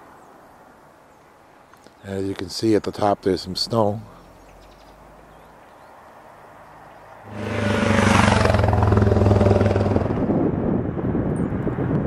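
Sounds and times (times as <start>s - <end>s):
wind and road noise: 0.0s - 12.0s
vehicle engine running: 7.3s - 10.3s.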